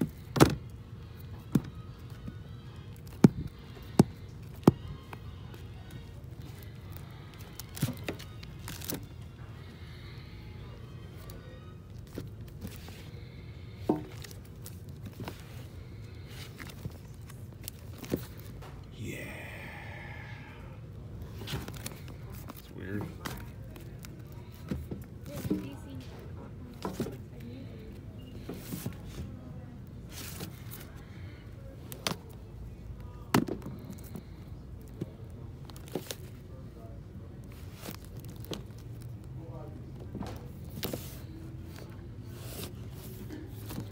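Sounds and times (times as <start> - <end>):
low background noise: 0.0 - 43.9
plastic rustles: 6.0 - 9.3, 37.4 - 43.9
low steady hum: 9.3 - 22.6.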